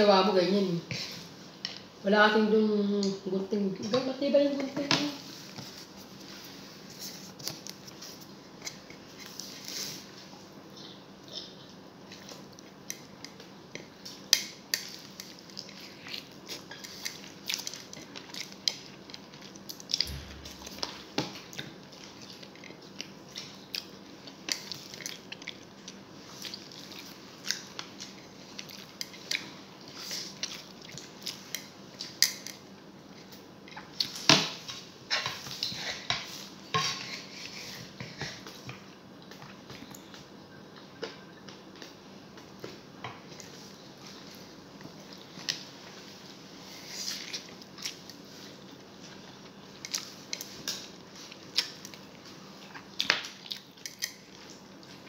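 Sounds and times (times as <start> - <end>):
chewing: 14.8 - 32.6, 47.0 - 55.0.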